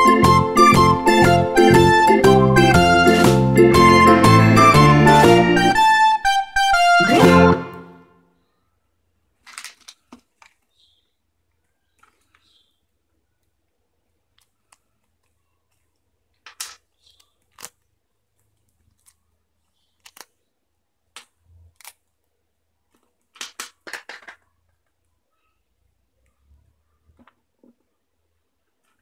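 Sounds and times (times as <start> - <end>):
plastic toy pieces clicking: 9.4 - 10.7, 14.3 - 18.0, 19.9 - 20.4, 21.1 - 22.2, 22.9 - 25.0
paper sticker sheet handled: 9.4 - 10.8, 14.2 - 20.4.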